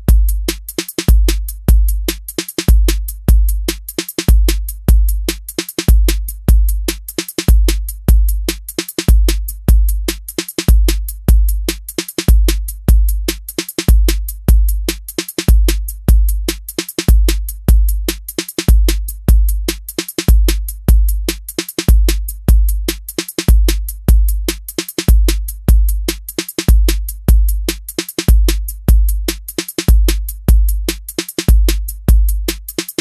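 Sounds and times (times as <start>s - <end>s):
deep bass kicks: 0.0s - 0.5s, 1.1s - 2.1s, 2.7s - 3.6s, 4.3s - 5.2s, 5.9s - 6.9s, 7.5s - 8.4s, 9.1s - 10.0s, 10.7s - 11.6s, 12.3s - 13.2s, 13.9s - 14.8s, 15.5s - 16.4s, 17.1s - 18.0s, 18.7s - 19.6s, 20.3s - 21.2s, 21.9s - 22.8s, 23.5s - 24.4s, 25.1s - 26.0s, 26.7s - 27.6s, 28.3s - 29.3s, 29.9s - 30.8s, 31.5s - 32.4s
fast hi-hat ticks: 0.0s - 33.0s.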